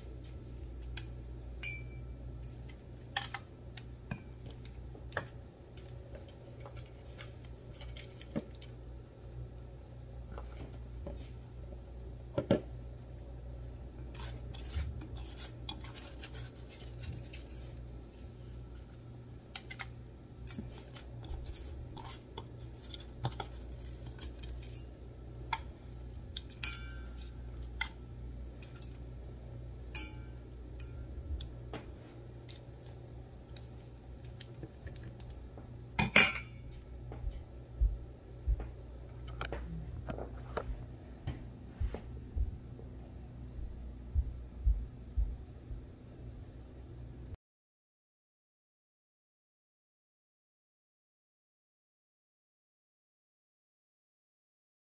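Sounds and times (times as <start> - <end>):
steady low hum: 0.0 - 47.4
ice crunching and scraping: 14.1 - 18.9.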